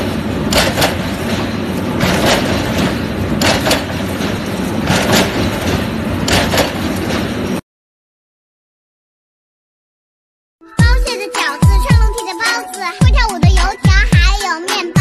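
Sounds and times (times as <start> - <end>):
machine rumbling: 0.0 - 7.6
sharp metallic clacks: 0.4 - 7.6.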